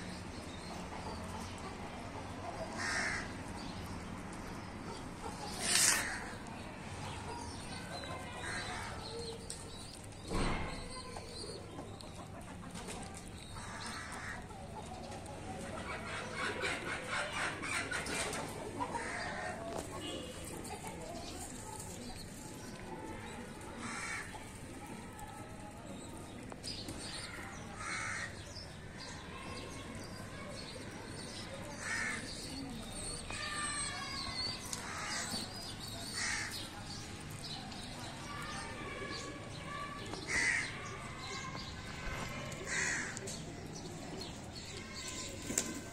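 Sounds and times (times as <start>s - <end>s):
chickens clucking: 0.1s - 10.2s, 10.8s - 45.9s
crow cawing: 2.8s - 3.3s, 27.8s - 28.3s, 40.3s - 40.7s, 42.7s - 43.2s.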